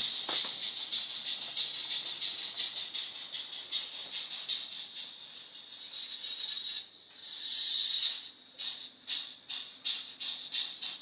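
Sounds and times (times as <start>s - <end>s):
model steam locomotive hissing: 0.0s - 11.0s
thin high squeal: 5.7s - 8.3s.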